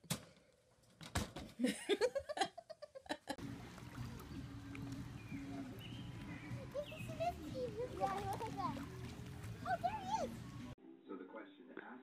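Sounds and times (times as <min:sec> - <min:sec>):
woman laughing: 0:01.6 - 0:03.4.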